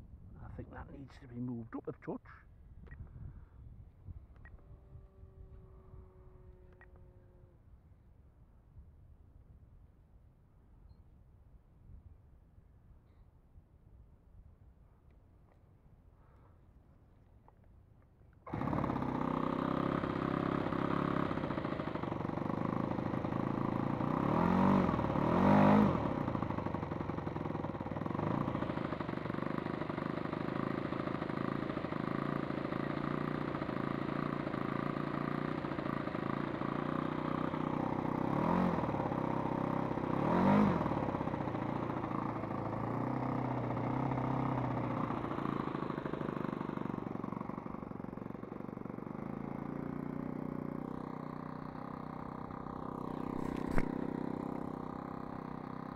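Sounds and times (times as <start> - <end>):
model aircraft engine running: 4.6 - 7.6, 18.5 - 55.9.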